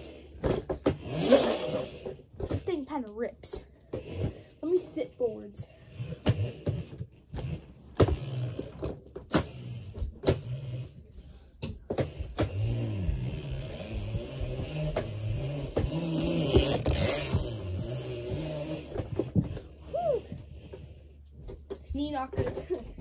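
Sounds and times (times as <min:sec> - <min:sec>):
bike knocking and clattering: 0:00.3 - 0:04.5, 0:06.1 - 0:10.8, 0:11.6 - 0:19.8, 0:21.3 - 0:23.0
wavering low whir: 0:05.6 - 0:11.4, 0:12.0 - 0:21.4.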